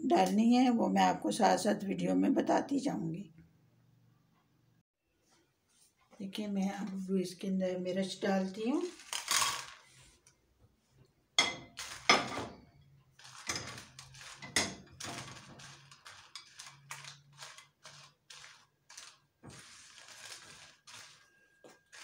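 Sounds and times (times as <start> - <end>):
dried chillies rattling in pan: 8.5 - 9.9, 11.7 - 12.4, 13.2 - 22.0
spatula knocking and scraping pan: 13.3 - 16.6.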